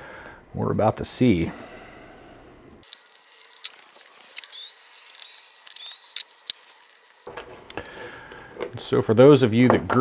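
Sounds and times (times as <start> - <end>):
cordless screwdriver whirring: 2.8 - 7.3
small parts clicking: 2.8 - 7.8.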